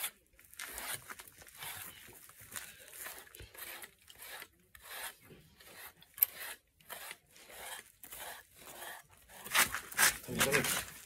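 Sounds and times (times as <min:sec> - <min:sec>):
brush scratching through fur: 0:00.0 - 0:11.0.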